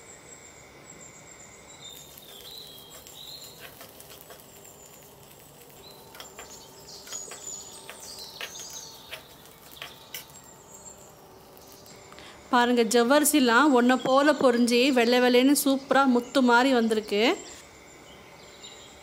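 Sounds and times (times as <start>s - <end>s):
birds chirping: 1.8s - 12.0s
spatula clicking and scraping in pan: 2.0s - 11.0s.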